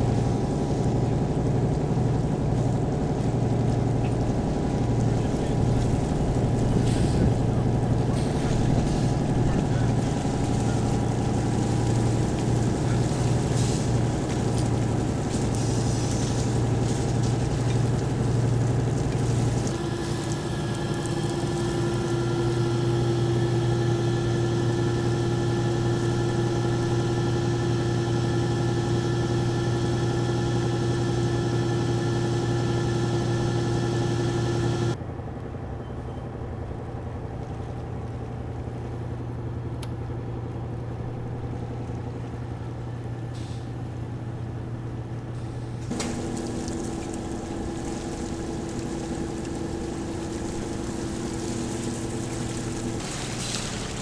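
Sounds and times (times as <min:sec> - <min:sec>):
engine running: 0:00.0 - 0:54.0
steady higher tone: 0:19.8 - 0:35.0.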